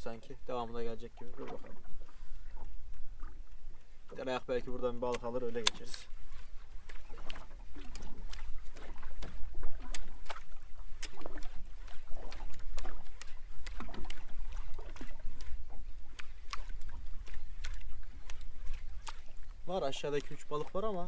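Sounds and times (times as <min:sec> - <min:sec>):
small waves lapping against boat hull: 0:00.0 - 0:21.0.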